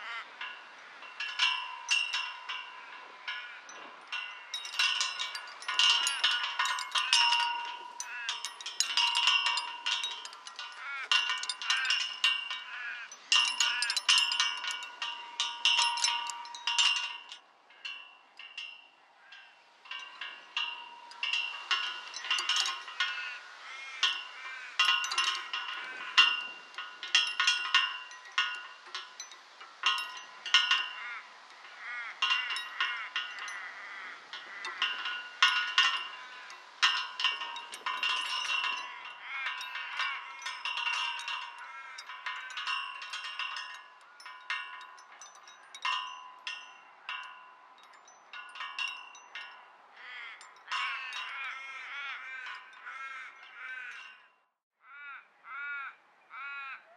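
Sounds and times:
metal rings and chains jingling: 0.0s - 54.6s.

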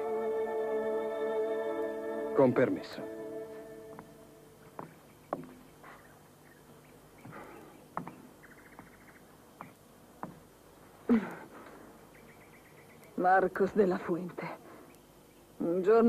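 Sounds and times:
knocks and footfalls: 3.9s - 6.0s, 7.2s - 9.0s, 9.6s - 10.5s.

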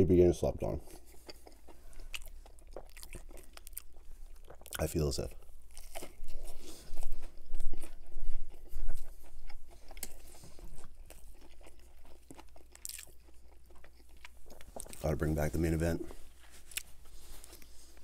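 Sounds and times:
chewing with wet mouth clicks: 0.9s - 15.0s
crunchy bite: 11.1s - 13.9s.

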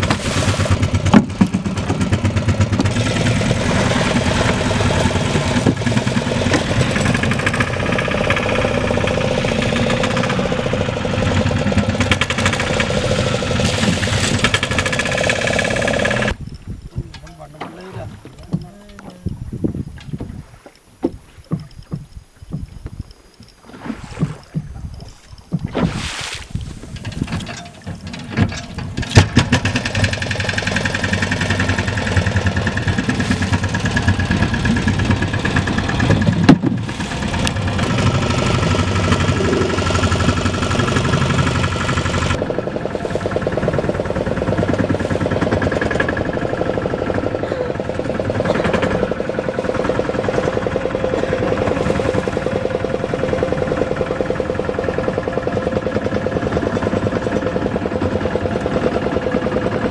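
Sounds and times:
outboard motor running: 0.0s - 59.9s
knocks and clatters: 26.9s - 36.9s.

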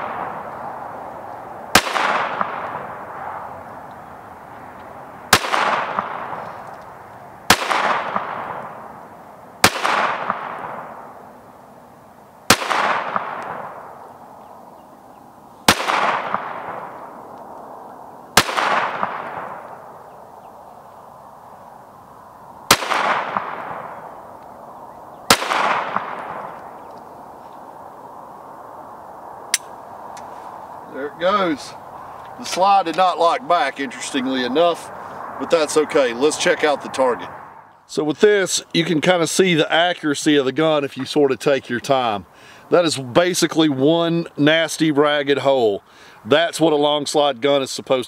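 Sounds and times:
pistol shots with echo: 1.7s - 3.5s, 5.3s - 6.4s, 7.5s - 9.0s, 9.6s - 11.1s, 12.5s - 13.9s, 15.7s - 17.2s, 18.4s - 19.8s, 22.7s - 24.2s, 25.3s - 26.8s.

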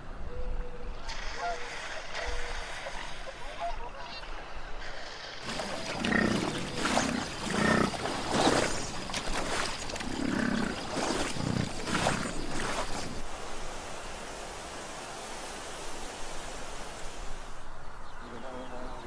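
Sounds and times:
bison grunting and bellowing: 5.4s - 13.2s.

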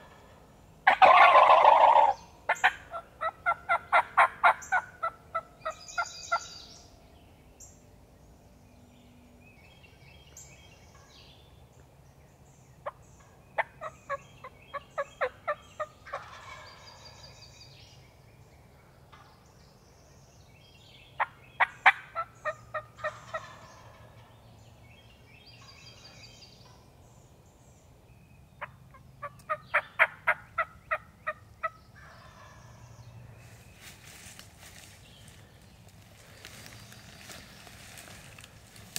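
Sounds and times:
turkey gobbling: 0.9s - 6.1s, 15.0s - 16.8s, 21.2s - 24.2s, 28.6s - 32.6s.

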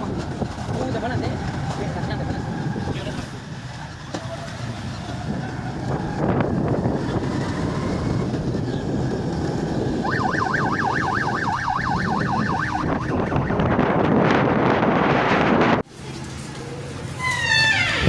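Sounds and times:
wind noise: 0.0s - 15.9s
road rumble: 0.0s - 18.0s
electronic siren horn warbling: 9.9s - 14.1s.

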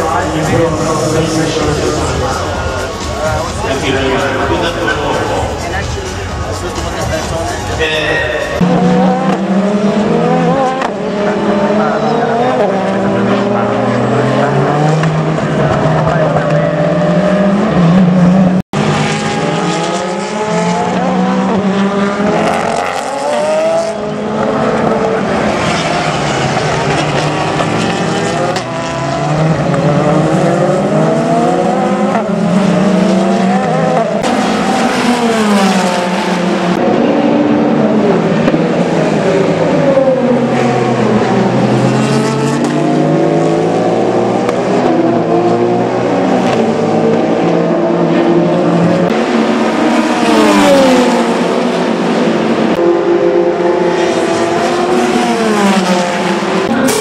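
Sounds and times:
race car engines accelerating: 0.0s - 57.0s.

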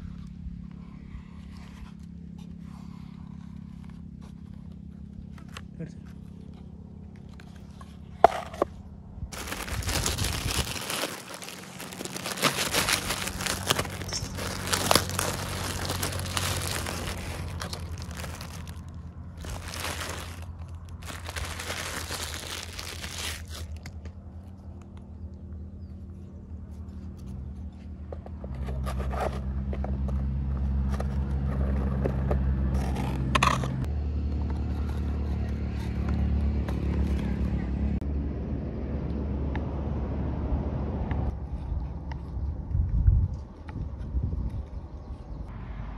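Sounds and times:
plastic packaging crinkling: 9.3s - 23.9s.

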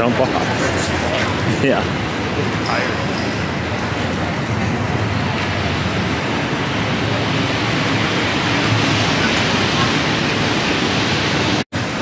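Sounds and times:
busy city street roar: 0.0s - 12.0s.

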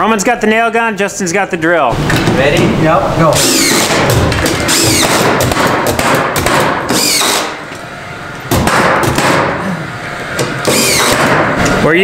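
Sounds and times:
cordless drill driving screws: 3.4s - 4.0s, 4.7s - 5.3s, 6.9s - 7.5s, 10.6s - 11.2s
nail gun firing: 3.4s - 7.6s, 8.5s - 9.6s, 10.4s - 11.5s.

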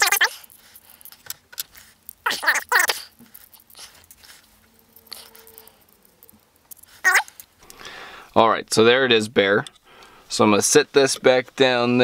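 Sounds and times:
person muttering: 0.0s - 0.4s, 2.2s - 3.1s, 7.0s - 7.3s.

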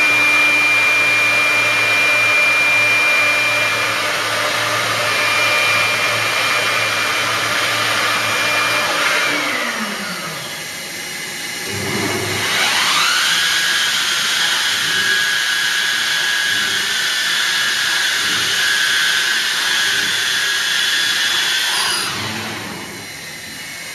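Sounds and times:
router machine rushing with whine: 0.0s - 23.9s.

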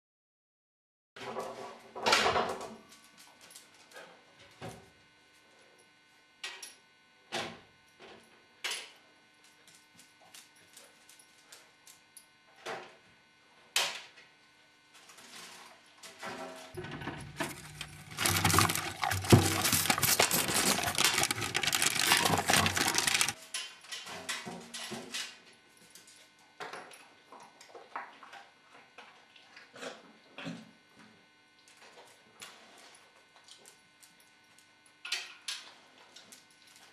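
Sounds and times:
dog rummaging in oven: 15.0s - 25.4s
paper bag rustling: 17.2s - 23.4s.

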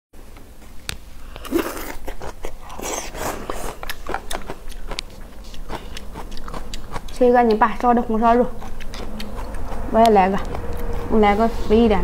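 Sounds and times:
noodles slurped: 1.3s - 11.4s
chewing: 1.3s - 11.8s.

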